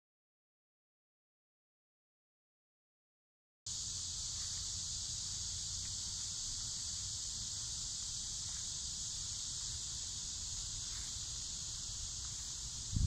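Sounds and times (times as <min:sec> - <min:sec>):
high-pitched insect chorus: 0:03.7 - 0:13.0.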